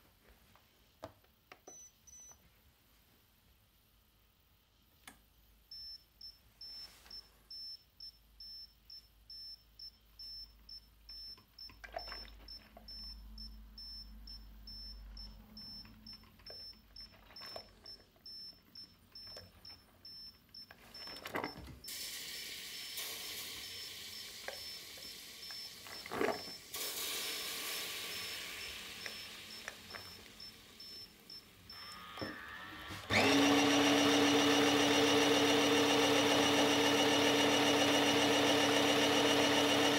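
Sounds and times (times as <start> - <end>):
coffee maker beeping: 21.0 - 39.9.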